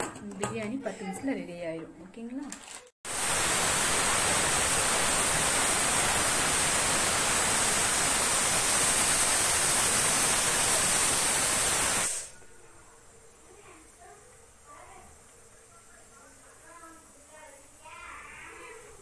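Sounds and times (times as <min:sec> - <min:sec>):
pressure cooker steam hissing: 0:03.1 - 0:12.4.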